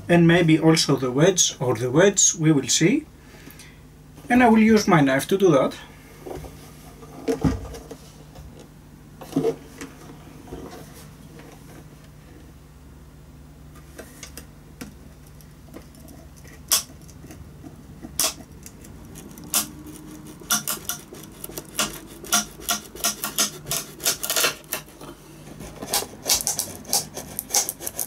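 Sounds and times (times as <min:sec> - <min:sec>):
wooden joint clicking and cracking: 0:15.3 - 0:25.0, 0:25.8 - 0:28.0.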